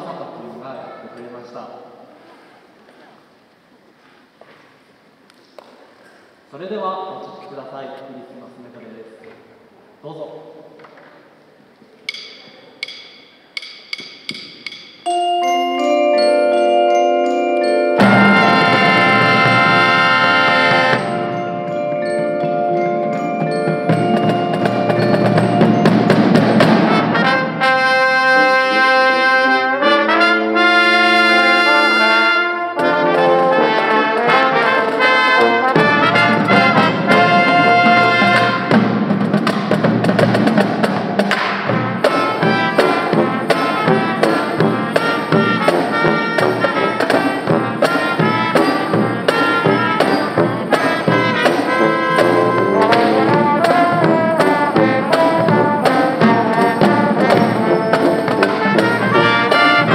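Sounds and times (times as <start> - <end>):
drums beating: 12.1 - 28.4, 30.0 - 59.9
marching band playing: 12.1 - 59.9.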